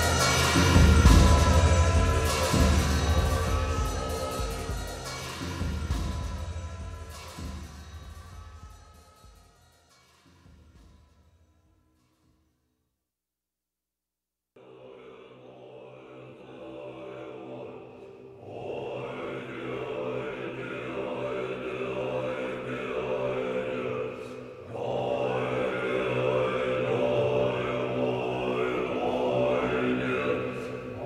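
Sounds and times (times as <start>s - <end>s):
monks chanting in unison: 0.0s - 7.6s, 14.6s - 31.0s.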